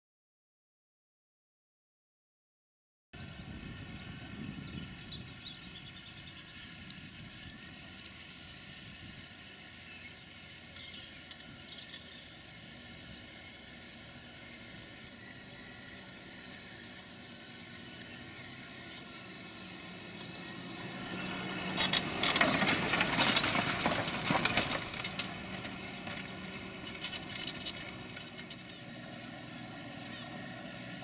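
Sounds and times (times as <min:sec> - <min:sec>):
tractor diesel engine drone: 0:03.2 - 0:31.0.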